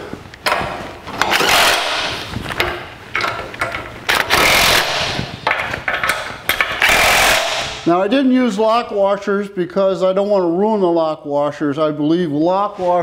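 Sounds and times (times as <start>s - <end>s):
cordless power driver running: 1.2s - 2.3s, 4.2s - 5.4s, 6.8s - 7.8s.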